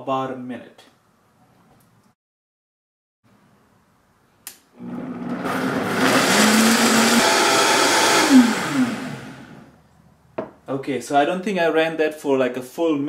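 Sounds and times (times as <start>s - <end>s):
blender running: 4.8s - 9.7s.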